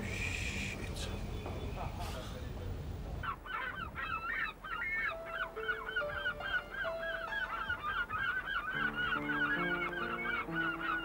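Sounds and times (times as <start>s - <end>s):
flock of birds chattering: 0.0s - 11.0s
soft music with held notes: 4.8s - 11.0s.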